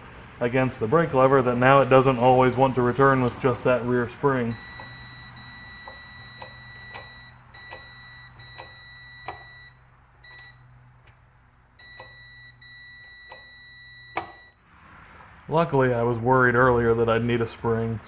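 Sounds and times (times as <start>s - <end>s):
multimeter continuity beeper tone: 4.5s - 10.7s, 11.8s - 14.6s.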